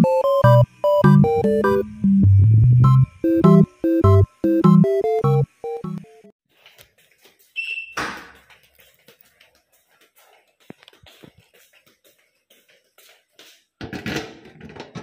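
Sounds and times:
faint footsteps: 6.5 - 13.8
high electronic beep: 7.6 - 8.0.

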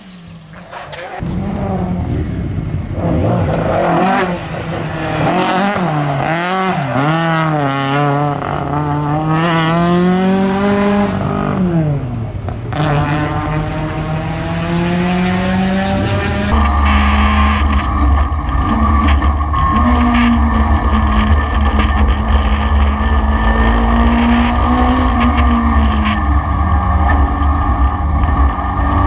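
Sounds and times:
race car engine accelerating: 1.2 - 29.0.

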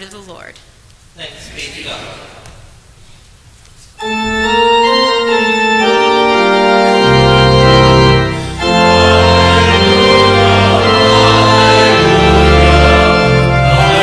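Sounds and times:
church organ chords: 4.0 - 14.0.

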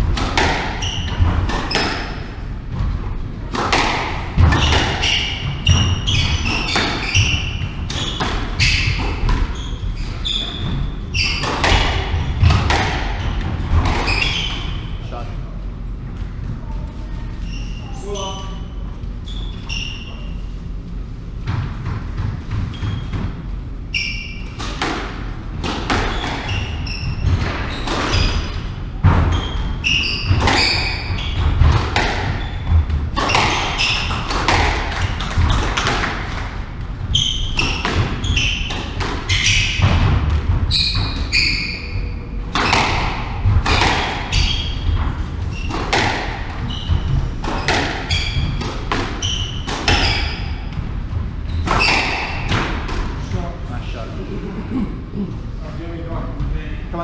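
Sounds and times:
squash ball hits: 0.0 - 14.9, 24.2 - 53.2
shoes squeaking on wooden floor: 0.7 - 3.0, 4.4 - 14.9, 16.4 - 20.6, 22.0 - 24.6, 26.0 - 35.9, 37.1 - 40.0, 40.7 - 52.7.

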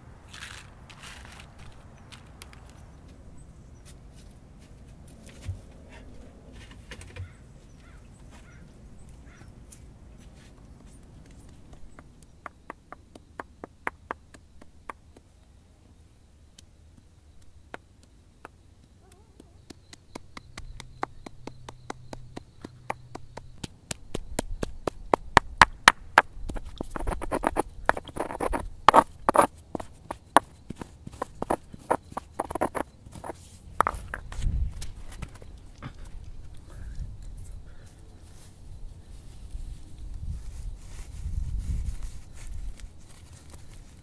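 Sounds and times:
stone knocking on acorns: 23.9 - 34.3
stone grinding on rock: 25.6 - 34.3.

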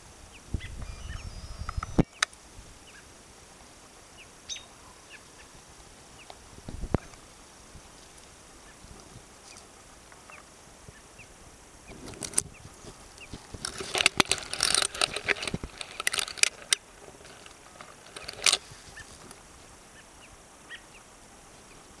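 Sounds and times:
faint high chirps: 0.3 - 2.3, 4.2 - 5.6
branches rustling and crackling: 1.7 - 22.0.

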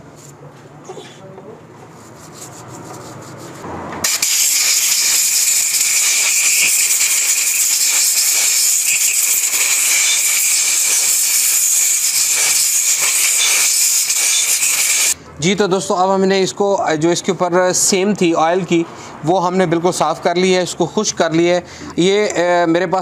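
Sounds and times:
compressed-air blow gun hissing: 4.0 - 15.2.

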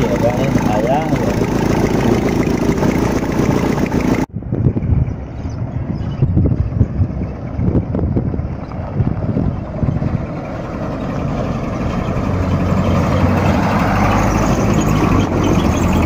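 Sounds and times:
pickup truck engine approaching: 0.0 - 4.3, 6.4 - 16.0.

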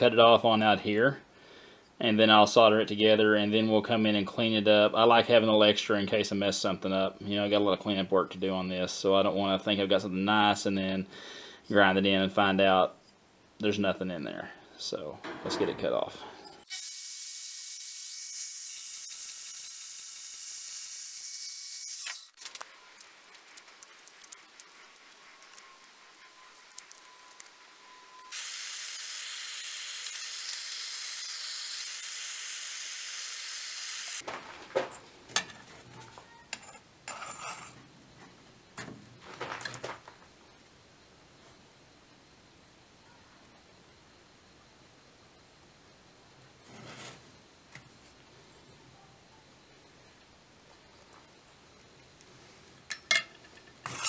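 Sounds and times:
small clicks and scrapes: 22.0 - 27.7.

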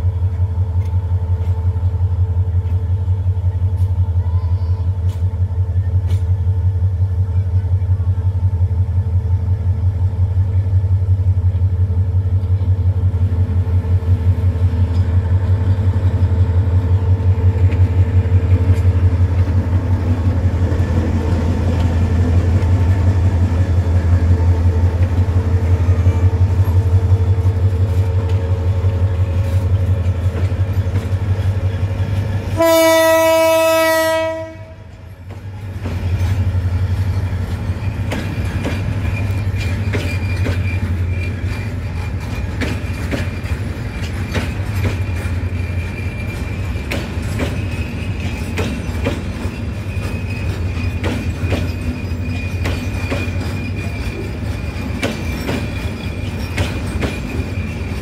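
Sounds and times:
diesel locomotive engine throbbing: 0.0 - 58.0
loud train horn blast: 32.5 - 35.0.

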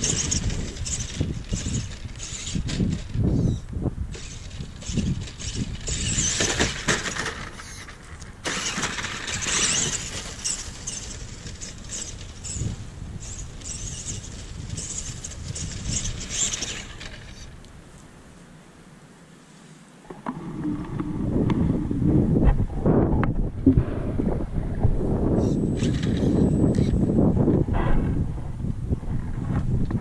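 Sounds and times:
electric motors and gears whining: 0.0 - 17.6, 25.2 - 27.5.

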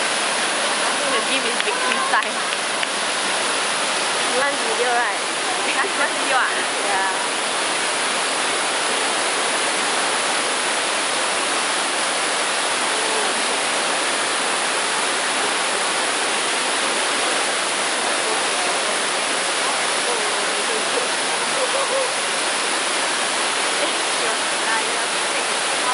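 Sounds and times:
waterfall rushing over rock: 0.0 - 25.9.

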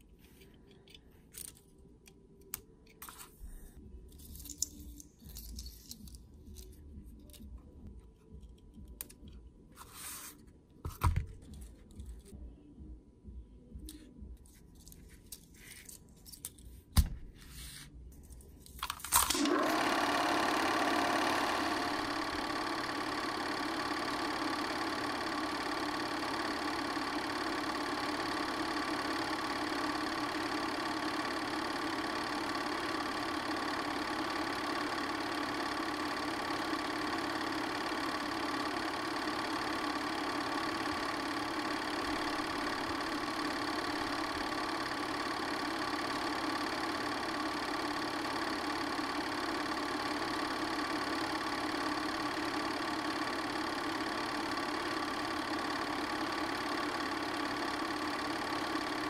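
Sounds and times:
film projector whirring: 18.7 - 59.0.

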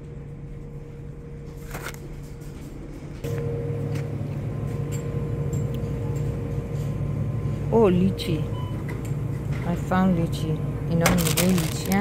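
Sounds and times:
refrigerated display cases humming: 0.0 - 12.0.

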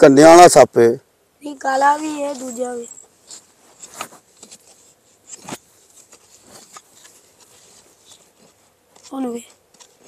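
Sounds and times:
tool scraping and knocking earth: 2.0 - 10.0.

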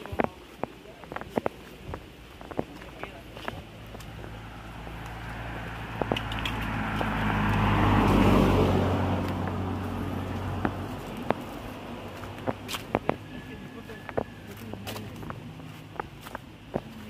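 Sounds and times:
footsteps on dirt path: 0.0 - 17.0
twigs crackling: 0.0 - 17.0
vehicle passing by: 3.6 - 16.9.

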